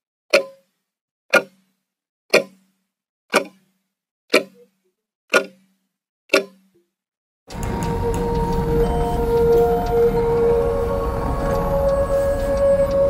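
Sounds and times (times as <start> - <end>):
wall clock ticking: 5.3 - 5.6.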